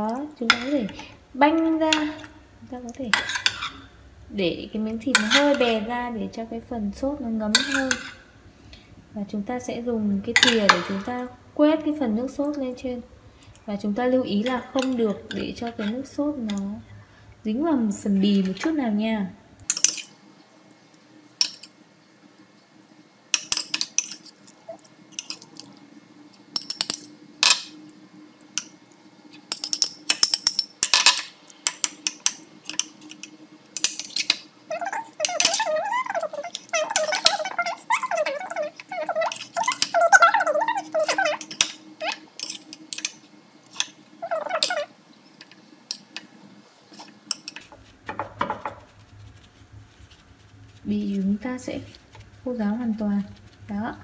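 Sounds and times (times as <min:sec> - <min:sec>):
metal spoon scraping ceramic bowl: 0:03.2 - 0:03.9, 0:05.2 - 0:05.8, 0:07.6 - 0:08.2, 0:14.8 - 0:16.0, 0:32.1 - 0:43.2, 0:43.8 - 0:44.9.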